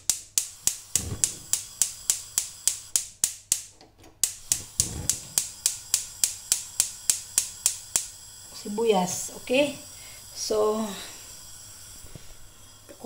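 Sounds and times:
rapid sharp clicking: 0:00.0 - 0:08.2.

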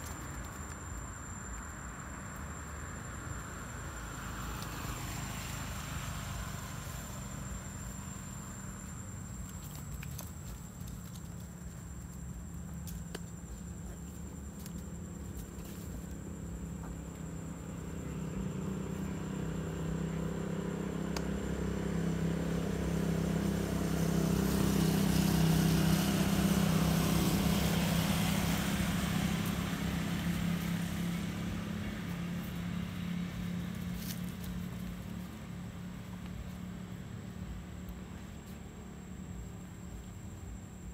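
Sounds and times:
vehicle engine passing by: 0:02.2 - 0:11.2, 0:14.0 - 0:39.8.

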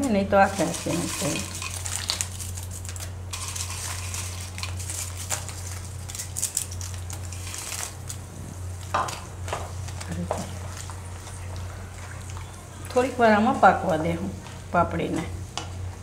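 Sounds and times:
crisp wafers crunching: 0:00.5 - 0:08.3.

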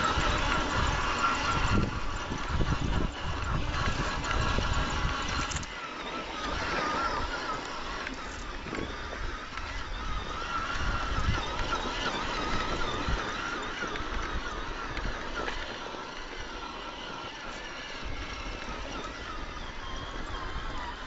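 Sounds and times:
toy car electric motor whine: 0:00.0 - 0:21.0.

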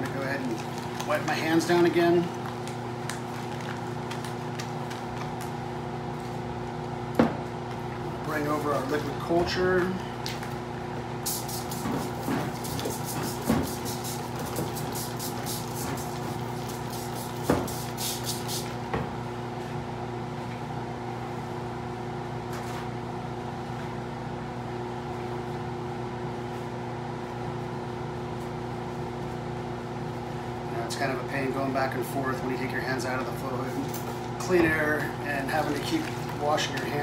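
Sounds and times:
blower humming: 0:00.0 - 0:37.0
spray bottle hissing sprays: 0:11.2 - 0:18.8.

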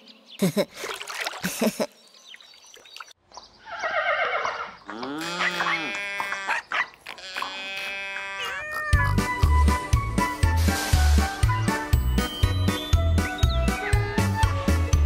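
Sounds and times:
cartoon animal calls: 0:03.8 - 0:09.5.

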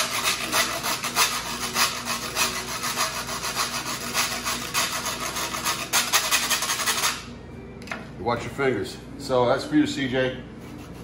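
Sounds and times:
metal grater rasping: 0:00.0 - 0:07.3.

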